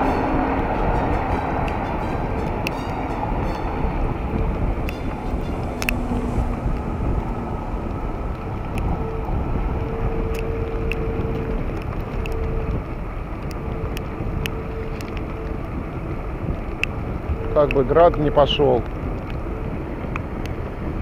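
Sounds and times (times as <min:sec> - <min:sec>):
wind rushing over microphone: 0:00.0 - 0:21.0
raindrops ticking on camera: 0:04.3 - 0:20.7.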